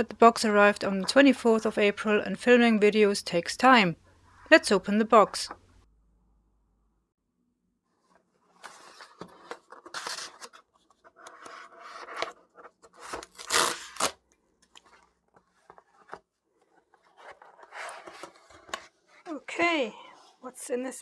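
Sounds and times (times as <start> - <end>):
cardboard ripping: 13.0 - 14.2.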